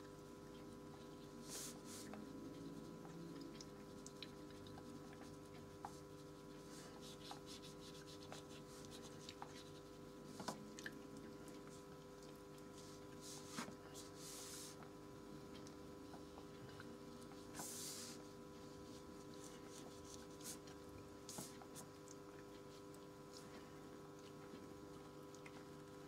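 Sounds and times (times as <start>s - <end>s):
paintbrush scratching on paper: 1.0s - 10.6s, 12.8s - 14.8s, 17.4s - 20.7s, 21.3s - 21.7s.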